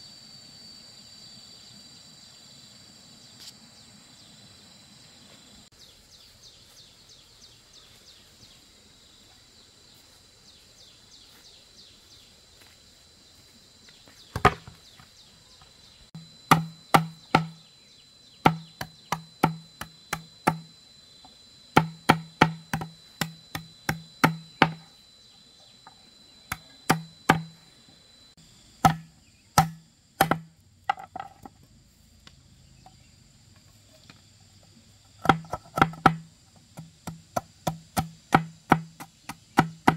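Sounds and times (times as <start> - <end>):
insects trilling: 0.0 - 39.9
machete chopping sticks on bamboo: 14.3 - 14.8, 16.2 - 17.6, 18.4 - 20.7, 21.8 - 24.9, 26.5 - 27.6, 28.8 - 31.5, 35.2 - 39.9.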